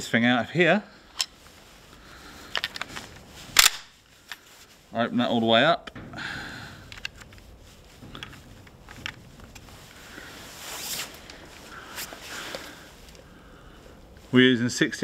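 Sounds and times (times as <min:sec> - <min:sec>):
air gun parts clicking: 0:01.1 - 0:01.4, 0:02.5 - 0:04.5, 0:06.8 - 0:09.7
sliding rub of gun pump: 0:06.9 - 0:13.2.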